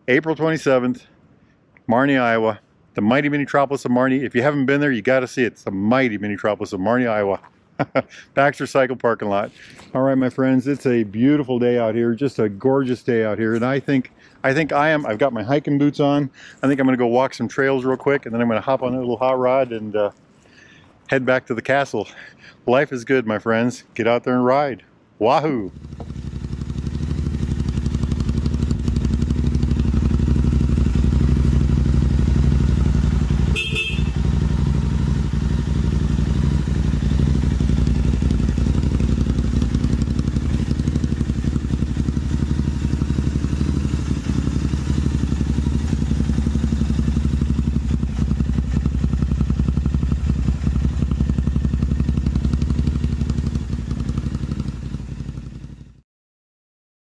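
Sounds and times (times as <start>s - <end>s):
motorcycle engine running: 25.7s - 56.0s.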